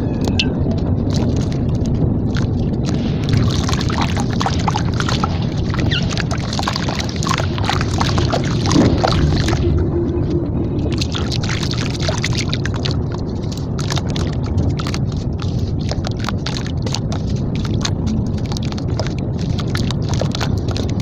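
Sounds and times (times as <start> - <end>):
water sloshing in bowl: 0.2 - 21.0
wet slab crumbling: 1.1 - 9.9.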